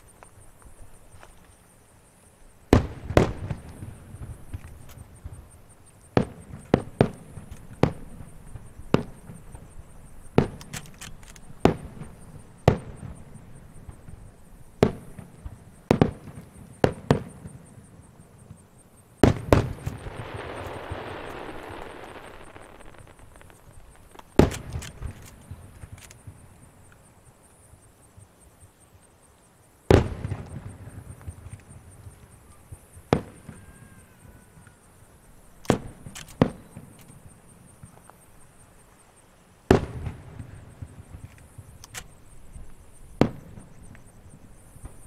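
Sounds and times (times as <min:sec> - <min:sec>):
firework bangs: 0:19.2 - 0:26.4
firework crackling: 0:19.2 - 0:26.4.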